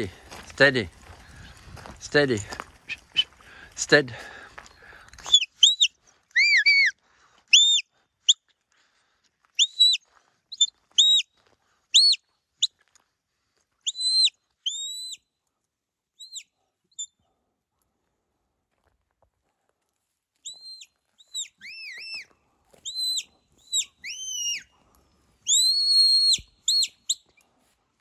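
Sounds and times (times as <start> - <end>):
shepherd's whistle: 5.2 - 8.4, 9.6 - 11.3, 11.9 - 12.7, 13.8 - 15.2, 16.2 - 17.2, 20.4 - 24.7, 25.4 - 27.4.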